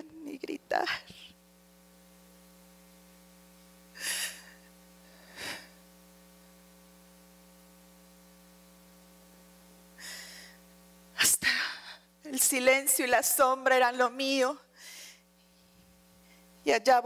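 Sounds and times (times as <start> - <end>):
electrical mains hum: 0.0 - 17.0
woman gasping: 4.0 - 5.8, 11.4 - 12.1.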